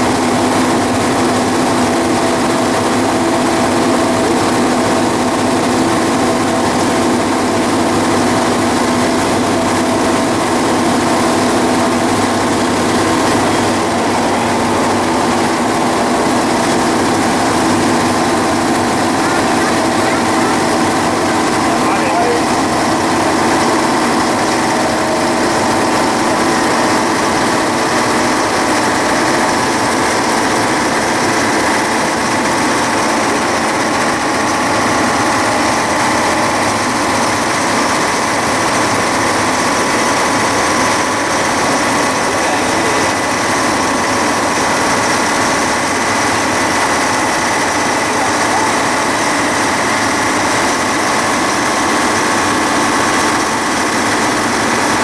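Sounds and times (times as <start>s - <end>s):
train engine drone: 0.0s - 55.0s.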